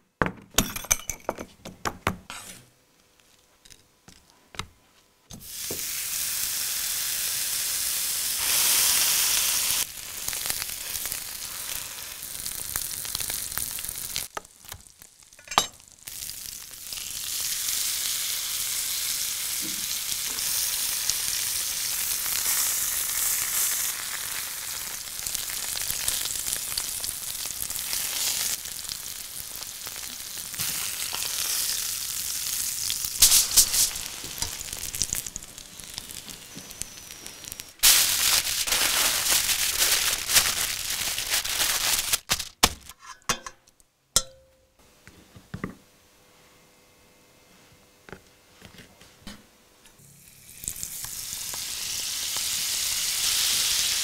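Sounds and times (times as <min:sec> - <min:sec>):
steak sizzling in frying pan: 0:05.4 - 0:42.3, 0:50.2 - 0:54.0
fat crackling: 0:32.8 - 0:42.9.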